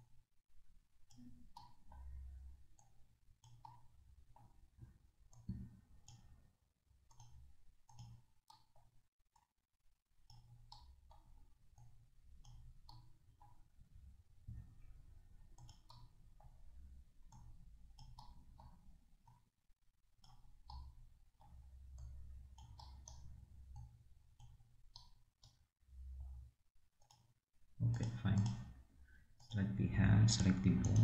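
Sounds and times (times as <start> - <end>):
mouse and keyboard clicking: 7.1 - 8.8, 15.6 - 16.1.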